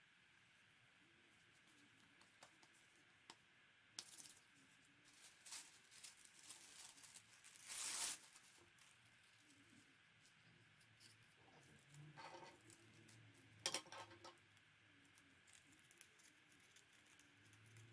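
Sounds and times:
tissue paper rustling: 4.0 - 9.7
tissue paper ripping: 5.0 - 8.9.

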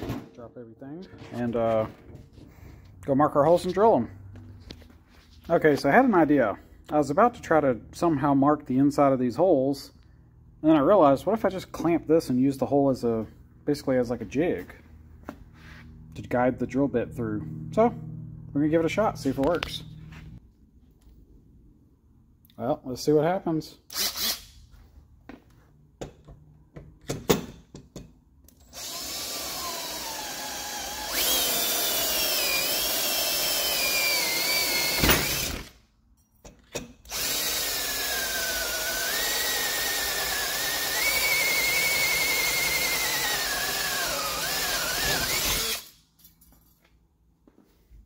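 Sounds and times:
power drill boring through aluminium: 28.6 - 35.8, 37.1 - 46.0.

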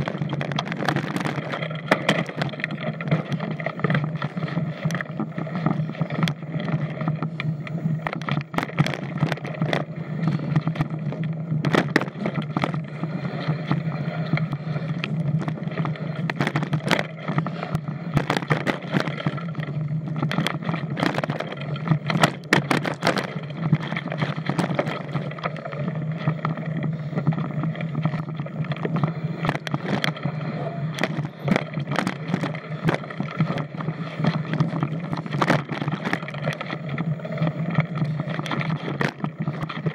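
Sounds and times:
bike knocks and rattles: 0.0 - 7.0, 8.0 - 13.0, 14.4 - 25.3, 31.0 - 37.0.

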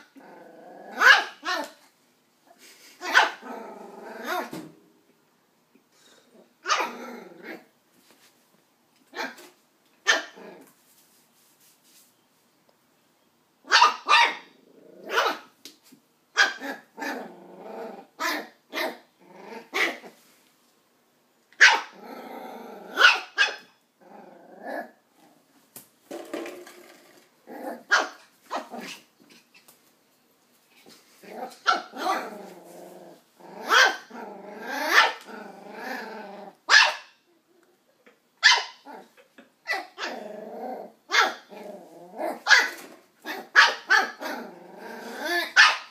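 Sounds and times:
puppy growling: 0.0 - 1.1, 3.3 - 4.9, 6.2 - 7.7, 14.5 - 15.2, 16.6 - 20.0, 21.9 - 23.0, 24.0 - 25.4, 26.7 - 27.9, 31.2 - 36.7, 38.8 - 42.5, 43.2 - 45.6
puppy yapping: 6.6 - 7.0, 21.6 - 22.0, 34.8 - 35.3, 36.7 - 37.1, 38.4 - 38.8, 42.3 - 44.3, 45.4 - 45.9.

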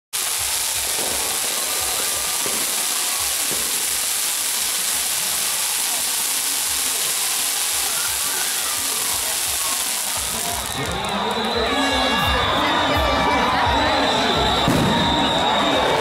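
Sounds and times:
fireworks crackling and hissing: 0.1 - 16.0
low firework thumps: 14.6 - 15.3.

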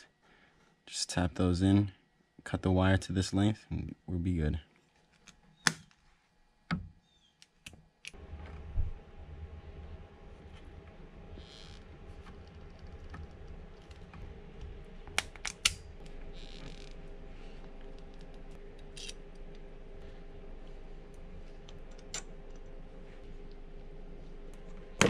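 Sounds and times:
faint steady hum: 0.0 - 25.0
wire crimpers snapping shut: 15.1 - 15.9.

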